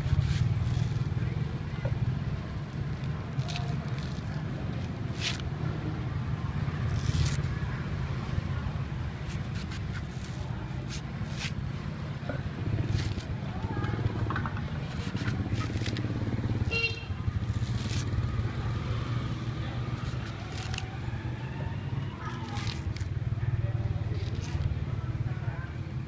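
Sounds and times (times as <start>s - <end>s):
low rumble of engines: 0.0s - 26.0s
cleaver chopping coconut husk: 2.8s - 5.7s, 9.2s - 16.7s, 17.3s - 21.4s, 22.3s - 23.2s.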